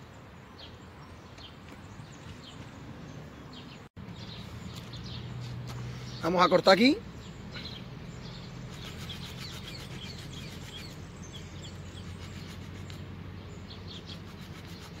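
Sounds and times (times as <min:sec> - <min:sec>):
birds chirping: 0:00.0 - 0:15.0
small saw rasping through wood: 0:08.6 - 0:11.0, 0:11.6 - 0:13.0, 0:14.0 - 0:15.0.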